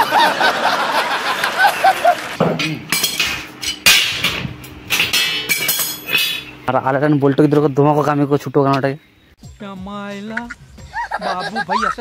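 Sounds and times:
man laughing: 0.0s - 2.4s, 10.8s - 12.0s
hammer striking steel rods: 2.4s - 6.5s.

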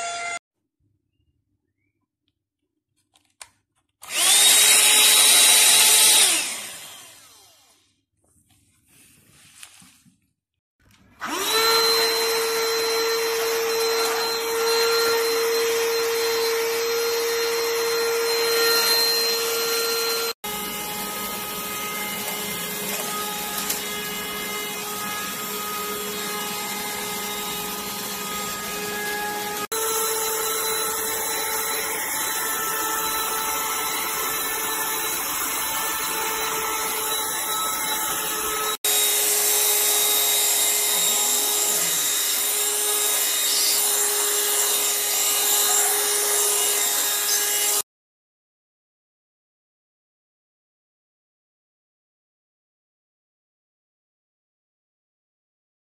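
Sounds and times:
vacuum cleaner motor whine: 4.0s - 7.8s, 11.2s - 47.8s.

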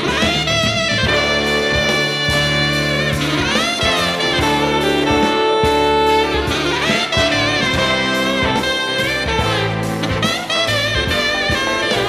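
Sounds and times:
bass: 0.0s - 12.0s
drums: 0.0s - 12.0s
saxophone jazzy melody: 0.0s - 12.0s.

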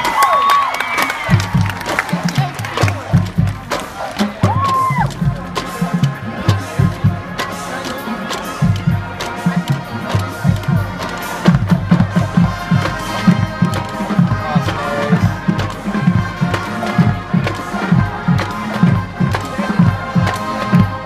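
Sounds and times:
marching band playing: 0.0s - 21.0s
bass drums beating: 1.2s - 7.5s.

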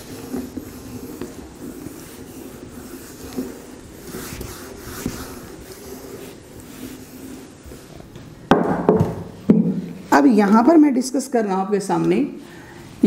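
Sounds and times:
duster wiping whiteboard: 0.0s - 8.4s.

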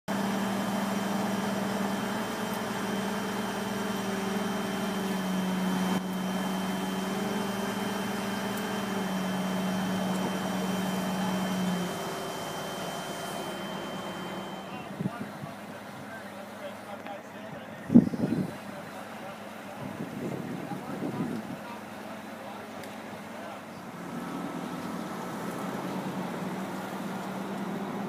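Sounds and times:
truck engine humming: 0.1s - 20.1s, 21.7s - 28.0s.

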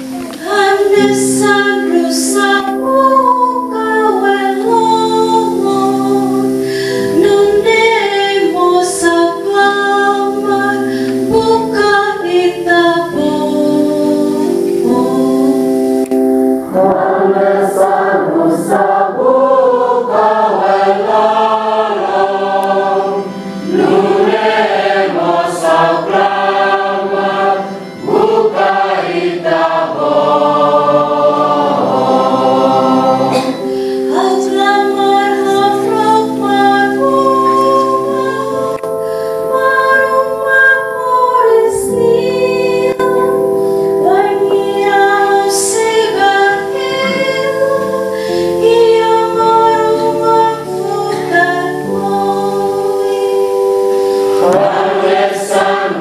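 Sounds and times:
woman singing solo: 0.0s - 16.1s
church choir singing: 0.0s - 56.0s
sustained held chords: 0.0s - 56.0s.

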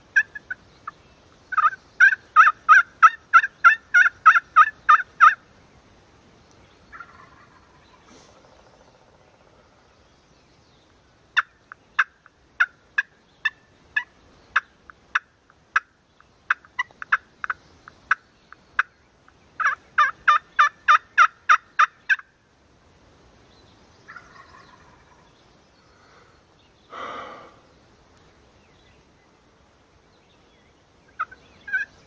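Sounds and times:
turkey call yelps: 1.5s - 5.4s, 19.6s - 22.3s, 24.1s - 25.1s, 31.1s - 31.9s.

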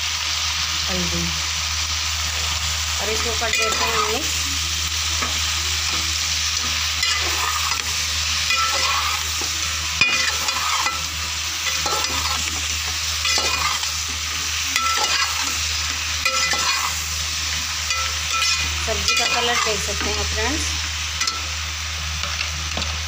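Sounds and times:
vegetables sizzling in oil: 0.0s - 23.0s
spoon scraping metal pan: 13.2s - 15.6s, 16.2s - 17.0s.

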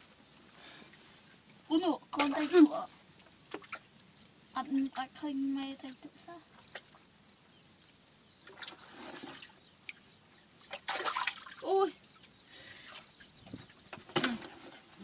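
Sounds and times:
muddy water sloshing and splashing: 1.7s - 2.9s, 3.5s - 3.9s, 8.4s - 10.0s, 10.6s - 12.2s.

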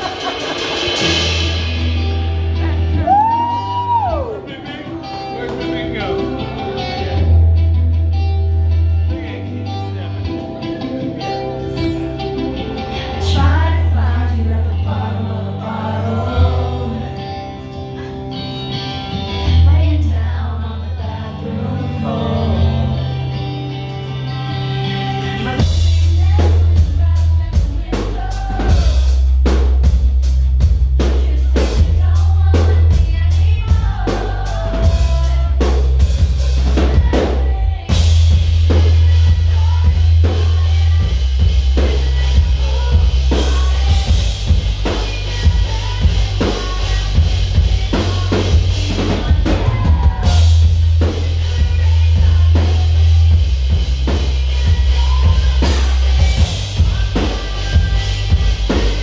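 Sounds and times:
drum kit: 0.0s - 7.6s, 24.0s - 59.0s
heavy bass: 0.0s - 59.0s
woman singing into microphone: 2.4s - 4.4s, 11.6s - 17.6s, 19.4s - 29.1s, 31.0s - 59.0s.

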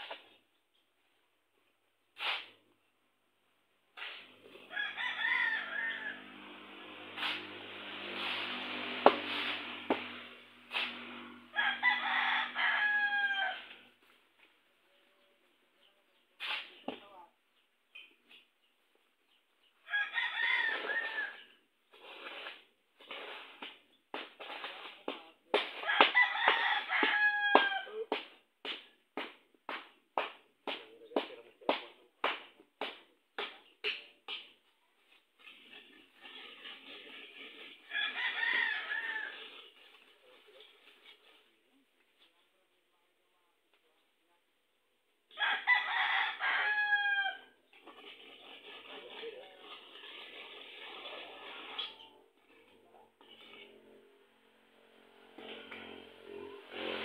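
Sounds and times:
rooster crowing: 4.7s - 6.5s, 11.5s - 13.8s, 19.9s - 21.4s, 25.8s - 27.9s, 37.9s - 39.5s, 45.4s - 47.6s.

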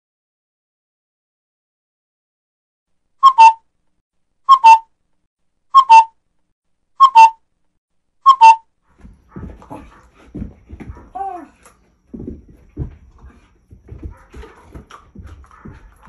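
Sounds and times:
cuckoo calls: 3.2s - 3.6s, 4.5s - 4.9s, 5.8s - 6.2s, 7.0s - 7.4s, 8.3s - 8.6s.

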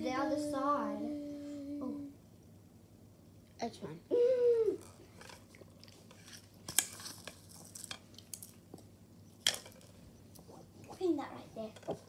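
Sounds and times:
child humming: 0.0s - 2.2s, 4.1s - 4.9s
crunchy clicks and rustles: 5.2s - 10.0s.

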